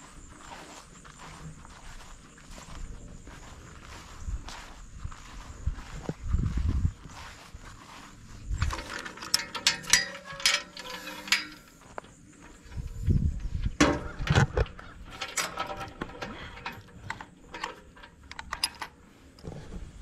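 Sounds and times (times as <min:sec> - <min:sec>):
metal gate and chain clanking: 0:08.4 - 0:19.0.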